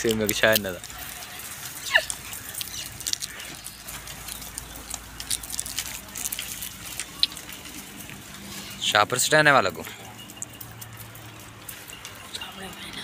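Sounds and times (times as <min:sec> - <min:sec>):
rustling leaves: 0:00.0 - 0:13.0
twigs crackling: 0:00.0 - 0:13.0.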